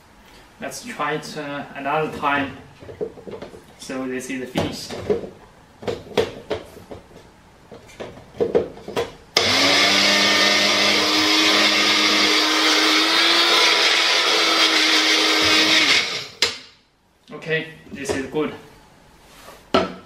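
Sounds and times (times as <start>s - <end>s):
blender grinding coffee beans: 9.4s - 16.4s.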